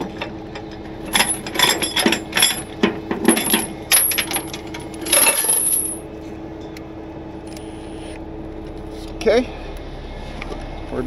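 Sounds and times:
steel chain rattling and clinking: 0:01.1 - 0:06.0.

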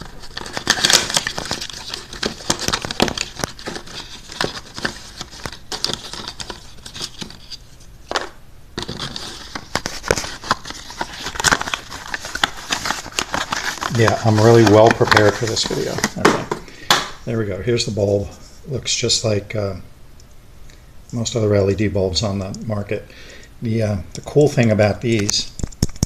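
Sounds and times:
cardboard box crinkling and clicking: 0:00.1 - 0:07.5, 0:08.8 - 0:16.2.

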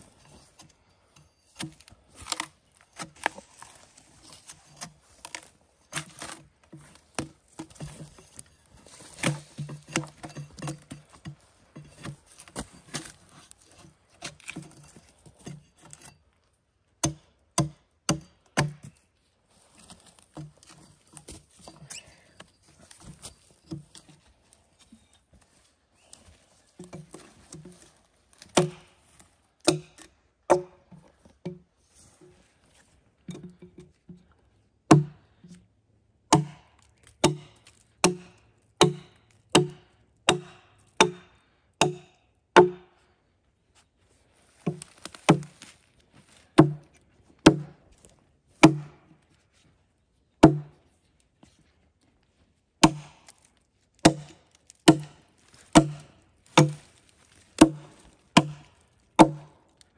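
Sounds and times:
wood being chopped: 0:01.6 - 0:03.8, 0:04.8 - 0:08.2, 0:09.0 - 0:11.1, 0:17.0 - 0:19.0, 0:28.4 - 0:31.6, 0:34.9 - 0:35.2, 0:36.3 - 0:42.9, 0:44.6 - 0:47.8, 0:48.6 - 0:49.1, 0:50.4 - 0:50.8, 0:52.8 - 0:59.6.

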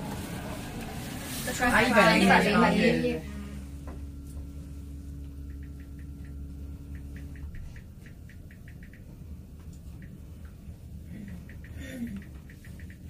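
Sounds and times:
elevator low hum: 0:00.0 - 0:13.0
quick high ticks: 0:05.4 - 0:09.0, 0:11.2 - 0:13.0.

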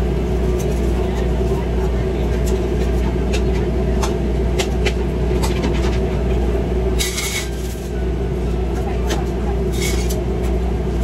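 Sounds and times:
exhaust hood drone: 0:00.0 - 0:11.0.

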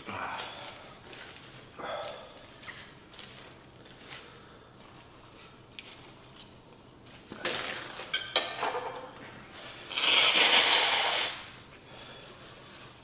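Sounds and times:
man blowing his nose: 0:09.9 - 0:11.6.

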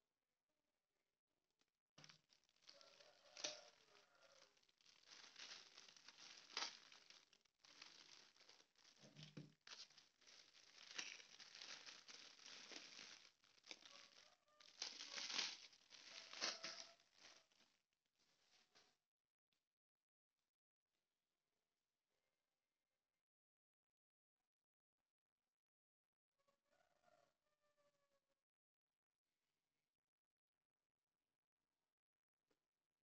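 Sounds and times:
plastic wrapping crinkling: 0:02.0 - 0:17.7.

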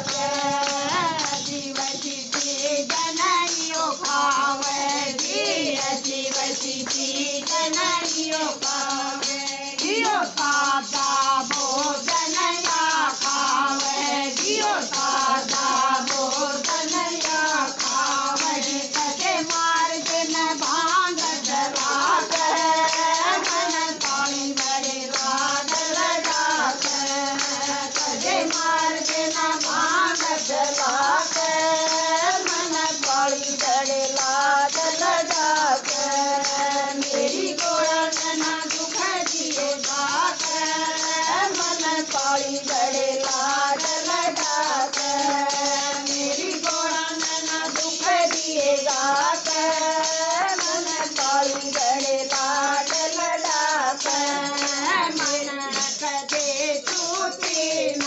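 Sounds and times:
rhythmic percussion: 0:00.0 - 0:58.0
person singing: 0:21.4 - 0:22.9.

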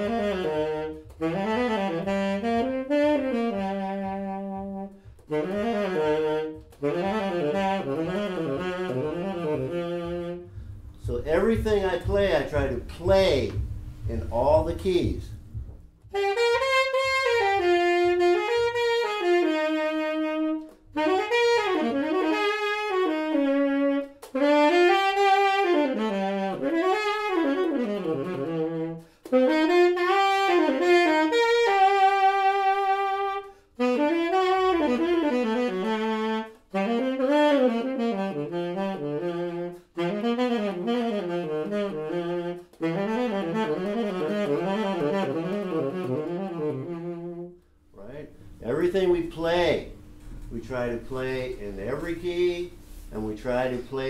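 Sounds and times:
tenor saxophone playing: 0:00.0 - 0:54.0.

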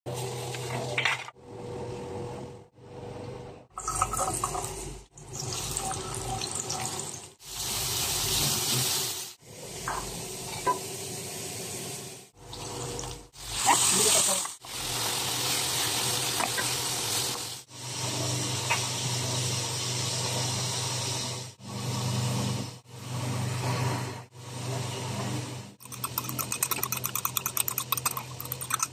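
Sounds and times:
cooking hiss: 0:06.7 - 0:21.5.

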